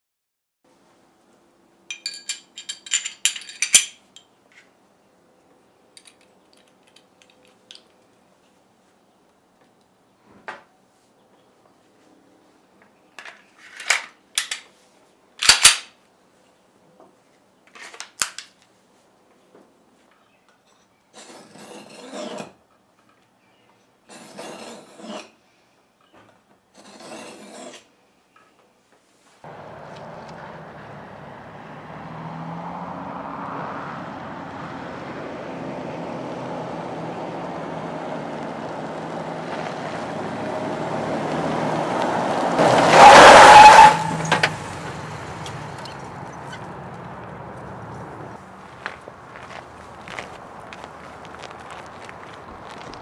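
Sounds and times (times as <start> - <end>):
handgun metallic click: 15.4 - 15.9
knife scraping through sharpener: 20.7 - 22.6, 24.1 - 25.4, 26.8 - 27.9.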